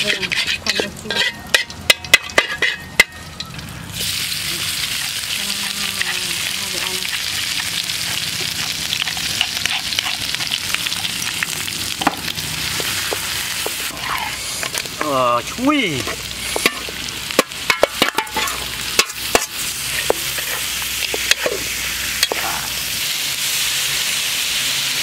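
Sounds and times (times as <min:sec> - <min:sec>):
spatula clinking: 0:00.0 - 0:03.6, 0:16.0 - 0:22.4
metal spatula scraping wok: 0:00.0 - 0:15.1, 0:16.0 - 0:22.6
loud sizzle in hot oil: 0:00.0 - 0:25.0.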